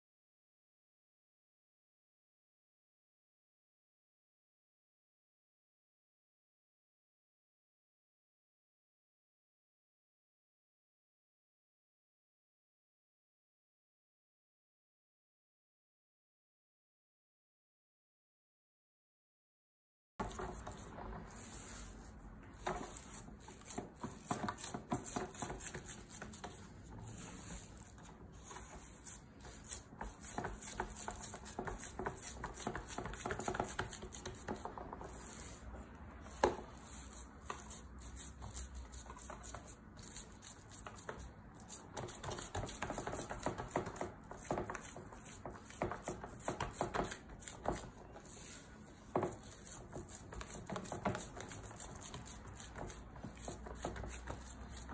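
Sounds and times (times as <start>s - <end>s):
hands patting dough in metal tray: 22.4s - 35.4s, 36.3s - 54.9s.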